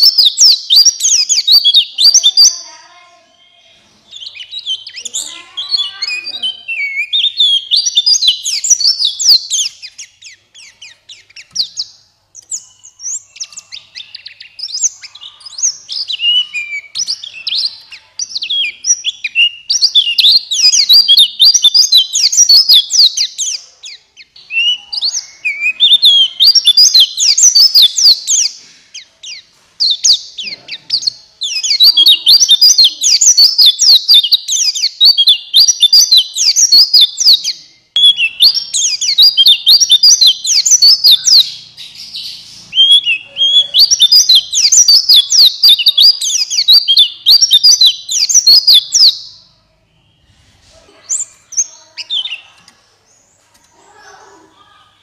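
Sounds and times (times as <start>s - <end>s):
bird twittering song: 0.0s - 54.4s.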